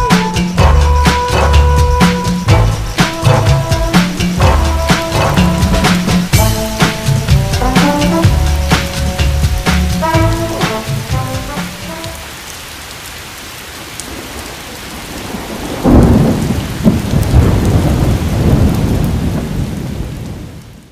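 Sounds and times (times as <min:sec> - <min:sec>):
music: 0:00.0 - 0:12.3
thunder rumbling: 0:00.0 - 0:12.4, 0:14.0 - 0:20.9
rain hiss: 0:00.0 - 0:20.9.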